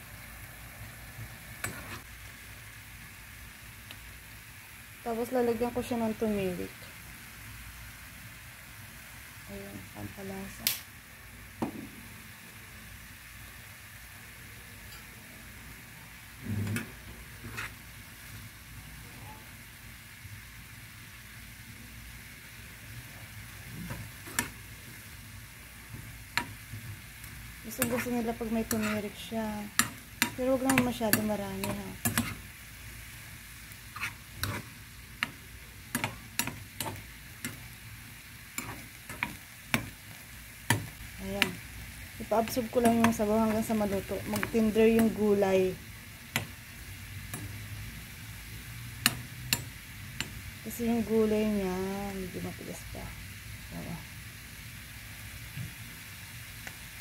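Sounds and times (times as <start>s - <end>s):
food sizzling in frying pan: 0.0s - 57.0s
spatula scraping frying pan: 1.6s - 2.1s, 16.4s - 17.8s, 23.6s - 24.6s, 27.7s - 32.6s, 33.8s - 37.7s, 38.5s - 40.0s.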